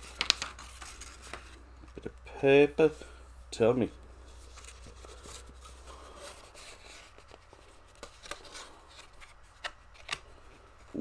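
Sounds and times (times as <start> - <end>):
paper rustling and sliding: 0.0 - 2.0, 4.3 - 11.0.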